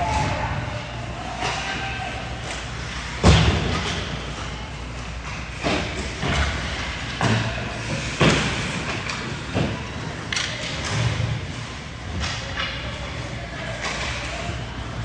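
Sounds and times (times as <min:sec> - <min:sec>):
thuds echoing in a hall: 0:03.0 - 0:04.4.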